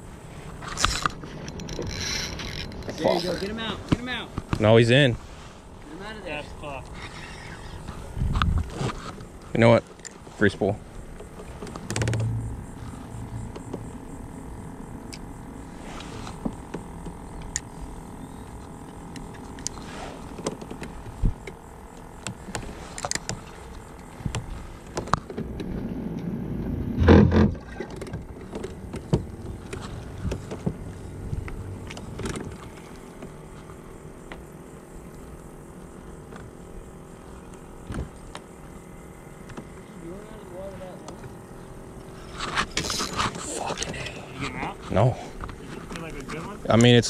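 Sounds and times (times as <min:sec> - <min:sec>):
electric motor humming: 0:00.1 - 0:47.0
fishing rod and reel knocks: 0:11.1 - 0:14.2.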